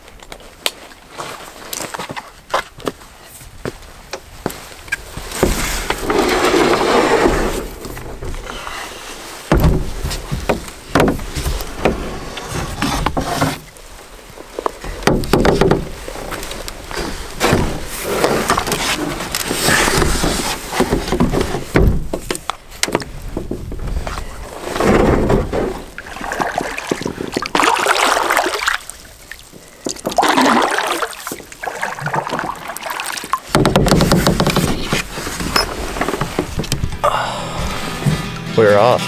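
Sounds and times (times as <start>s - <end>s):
knocks against canoe hull: 9.5s - 12.1s, 14.9s - 16.0s, 19.8s - 23.8s, 33.5s - 35.1s
paddle strokes in water: 25.6s - 36.9s.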